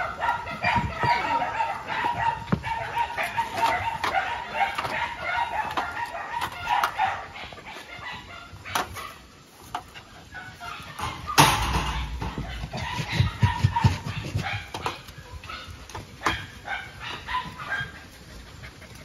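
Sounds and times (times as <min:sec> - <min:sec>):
metal dustpan scraping and knocking: 0:11.0 - 0:12.9
loud thumps and knocks: 0:11.0 - 0:14.5.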